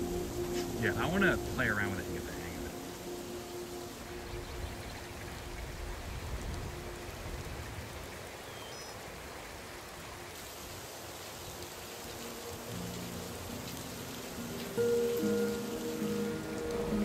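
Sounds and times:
water rushing: 0:00.0 - 0:17.0.

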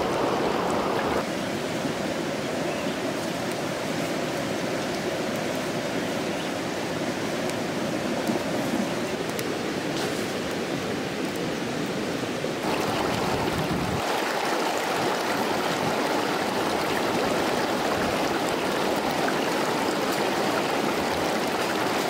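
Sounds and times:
water running over stones: 0:03.0 - 0:22.0.

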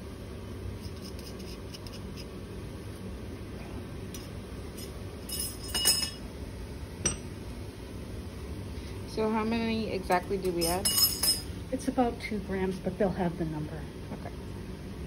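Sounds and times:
low room hum: 0:00.0 - 0:15.0
glasses clinking: 0:04.2 - 0:06.2, 0:10.4 - 0:11.5.

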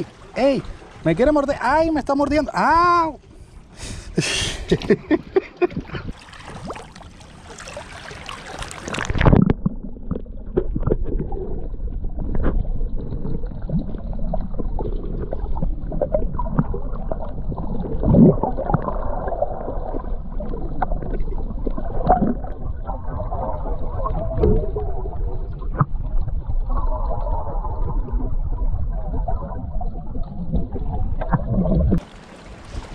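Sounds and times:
water splashing: 0:00.0 - 0:03.7, 0:04.4 - 0:32.9
underwater clicks and knocks: 0:08.9 - 0:17.3, 0:24.0 - 0:24.9, 0:25.5 - 0:26.8, 0:30.2 - 0:32.0
muffled underwater rumble: 0:08.9 - 0:32.0.

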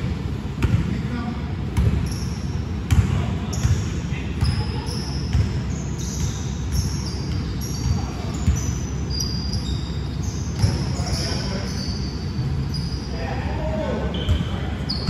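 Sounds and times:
basketball bouncing on gym floor: 0:00.0 - 0:01.0, 0:01.7 - 0:09.3, 0:10.5 - 0:11.6
sneaker squeaks: 0:01.7 - 0:15.0.

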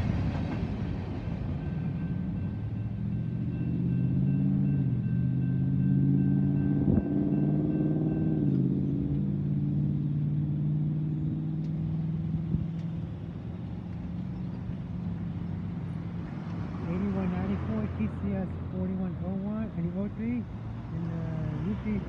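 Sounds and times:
car engines idling and pulling away: 0:00.0 - 0:22.0
railroad crossing bell ringing: 0:00.2 - 0:09.6.

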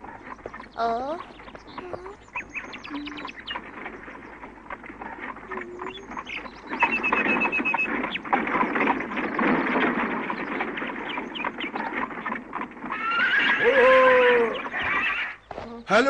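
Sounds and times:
hooves clopping: 0:00.0 - 0:16.0
wagon wheels rattling: 0:00.0 - 0:16.0
horse neighing: 0:12.8 - 0:15.4.

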